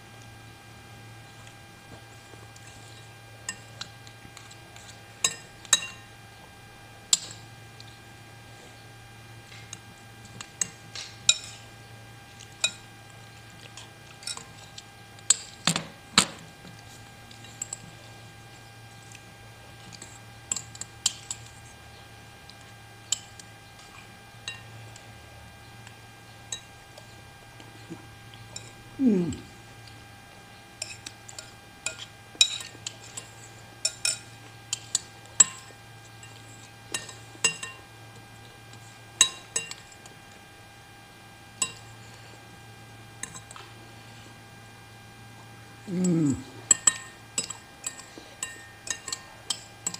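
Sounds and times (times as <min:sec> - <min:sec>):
low steady hum: 0:00.0 - 0:49.9
cutlery clinking against bowl: 0:03.5 - 0:06.0, 0:30.8 - 0:37.9, 0:38.7 - 0:40.1, 0:41.6 - 0:41.9, 0:46.6 - 0:49.9.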